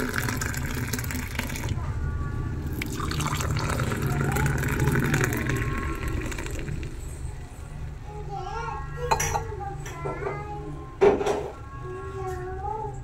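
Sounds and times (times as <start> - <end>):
coffee pouring into clay cups: 0.0 - 1.8, 2.7 - 7.1.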